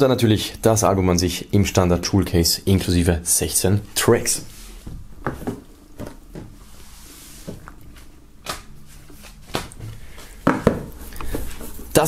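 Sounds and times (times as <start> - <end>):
knocks on wooden table: 10.5 - 10.9.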